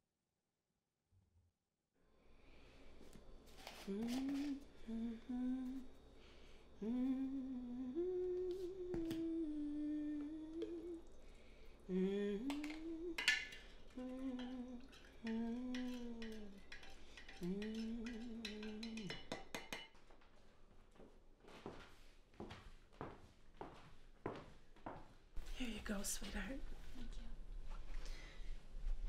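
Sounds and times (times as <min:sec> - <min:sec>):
woman humming: 0:03.7 - 0:06.0, 0:06.8 - 0:11.2, 0:11.9 - 0:16.6, 0:17.4 - 0:19.2
spoon clinking in glass pitcher: 0:12.5 - 0:20.0.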